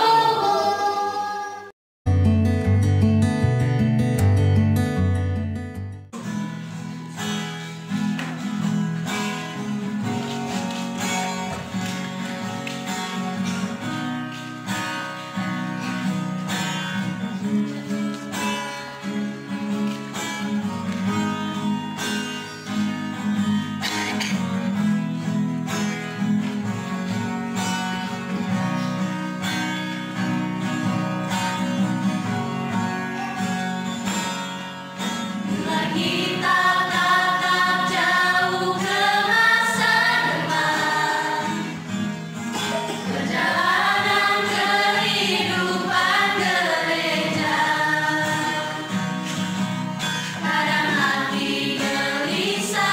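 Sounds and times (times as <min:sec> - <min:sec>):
acoustic guitar strumming: 0:00.0 - 0:52.9
other music: 0:25.6 - 0:52.9.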